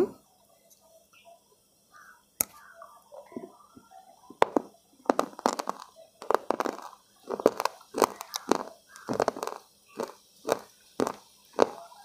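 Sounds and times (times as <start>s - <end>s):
crunchy chewing: 5.1s - 11.8s.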